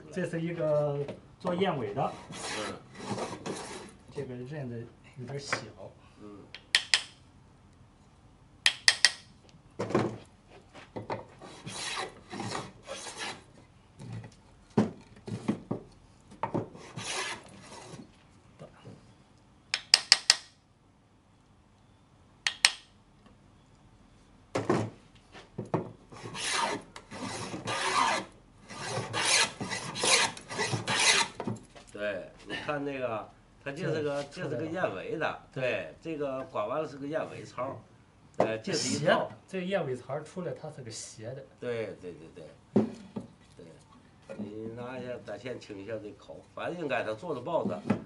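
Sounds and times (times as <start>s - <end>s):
hand plane rasping on wood: 2.1s - 3.9s, 11.4s - 13.4s, 16.8s - 18.0s, 26.2s - 31.4s.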